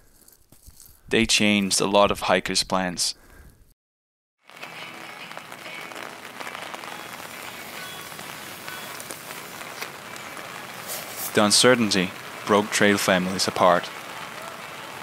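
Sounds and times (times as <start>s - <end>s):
gas stove hissing: 7.4s - 12.0s.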